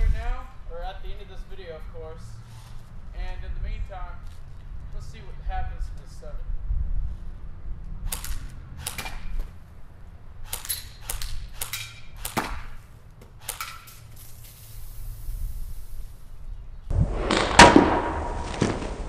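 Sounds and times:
can spraying fizzing hiss: 0:14.2 - 0:16.0.

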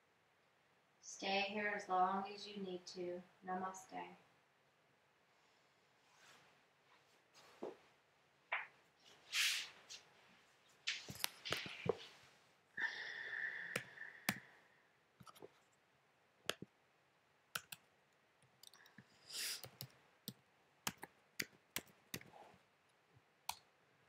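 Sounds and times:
short hiss: 0:09.3 - 0:09.8, 0:19.3 - 0:19.7
fingers tapping recording device: 0:16.4 - 0:16.7.

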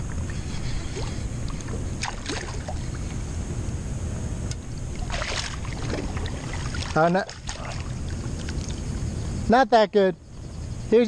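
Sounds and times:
wind buffeting microphone: 0:00.0 - 0:11.0
water splashing: 0:00.8 - 0:03.1, 0:04.9 - 0:08.9
water moving around kayak: 0:04.6 - 0:09.1.

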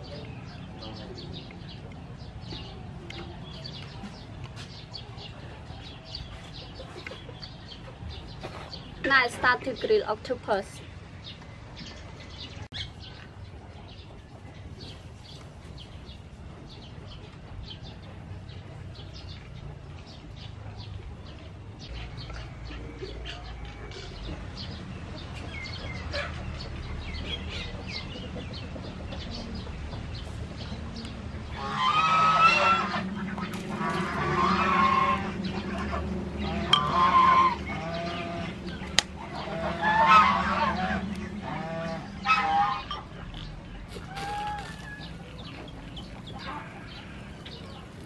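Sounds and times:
domestic fowl calling: 0:31.5 - 0:43.1
skewers sizzling on charcoal grill: 0:43.9 - 0:48.0.

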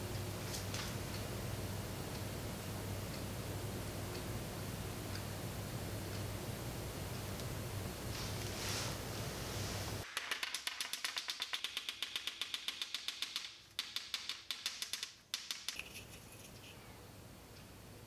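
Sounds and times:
faint hiss: 0:02.4 - 0:10.1.

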